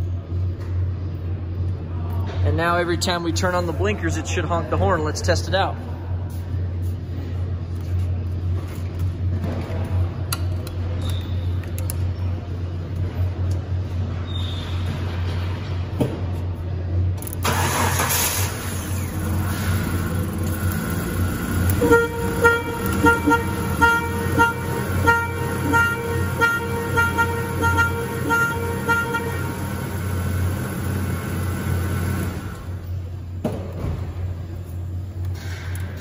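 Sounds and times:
car engine idling: 17.4s - 33.4s
car horn beeping in pulses: 21.7s - 30.9s.

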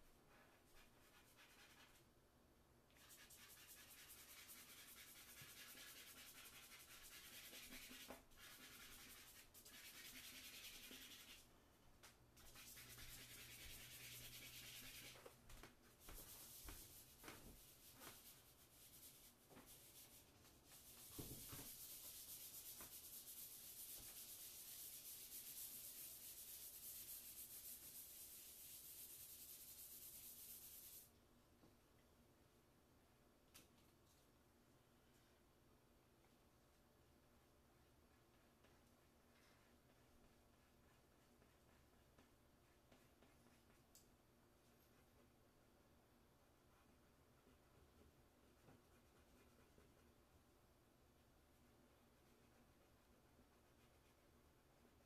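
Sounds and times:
chalk scratching on paper: 0.3s - 2.0s, 3.0s - 11.5s, 12.4s - 15.3s, 16.0s - 31.1s, 38.1s - 43.9s, 46.5s - 50.2s, 51.5s - 55.0s.

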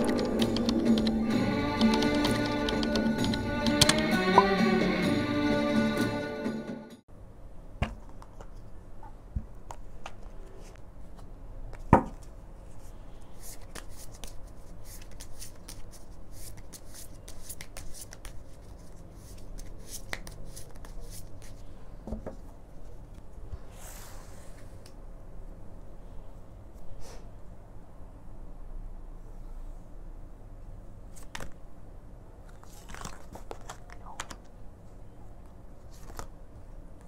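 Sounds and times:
cards being shuffled: 9.6s - 21.7s, 31.1s - 31.6s, 32.4s - 34.6s, 35.4s - 37.0s.

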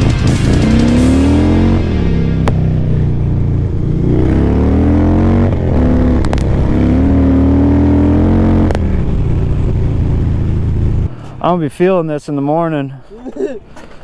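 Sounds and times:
motorcycle engine revving: 0.0s - 11.2s.

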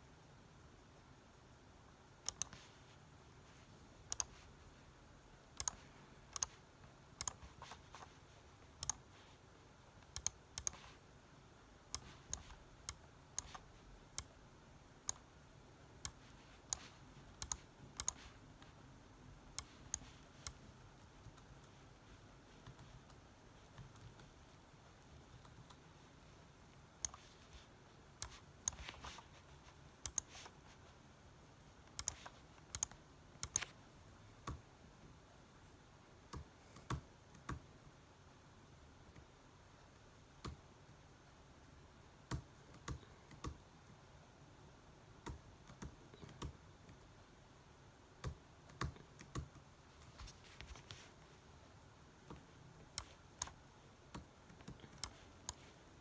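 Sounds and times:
laptop keyboard typing: 2.2s - 3.0s, 4.0s - 4.6s, 5.4s - 9.4s, 10.0s - 11.0s, 11.8s - 18.8s, 19.5s - 25.9s, 27.0s - 30.9s, 31.8s - 33.8s, 36.3s - 37.7s, 42.2s - 44.0s, 45.2s - 47.0s, 48.2s - 51.1s, 52.2s - 55.8s.

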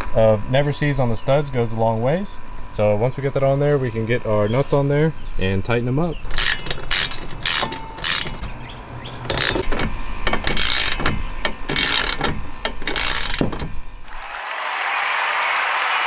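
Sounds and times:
ratchet wrench clicking: 6.3s - 13.9s.

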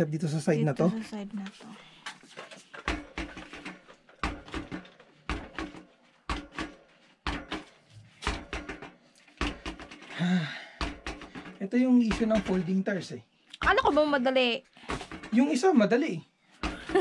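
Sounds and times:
bike wheel thudding on floor: 2.7s - 12.8s.

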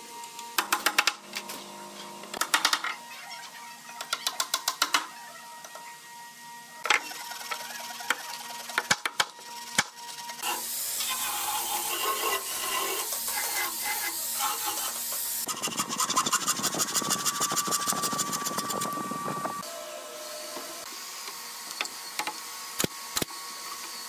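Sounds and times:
pulsing machine whine: 5.1s - 24.0s
electric sander on wood: 6.0s - 22.7s.

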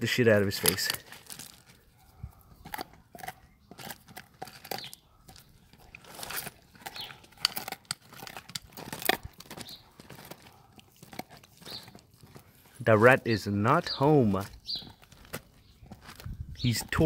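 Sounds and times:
dog gnawing on bone: 0.6s - 12.8s
teeth cracking on bone: 0.6s - 12.8s, 14.5s - 16.6s.

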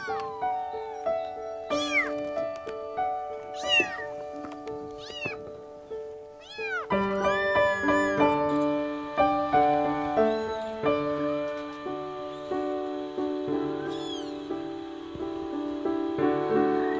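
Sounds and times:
kittens mewing: 0.0s - 0.4s, 1.7s - 2.2s, 3.5s - 4.2s, 4.9s - 5.5s, 6.4s - 8.4s, 13.8s - 14.3s
soft piano music: 0.0s - 16.9s.

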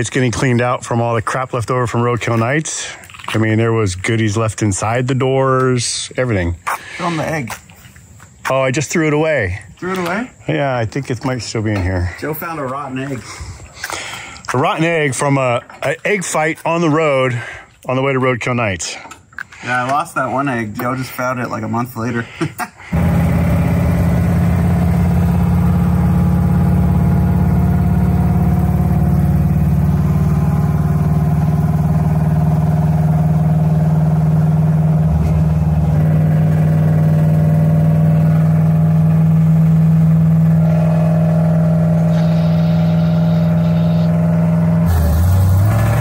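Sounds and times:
car engine and exhaust droning: 22.9s - 46.0s.

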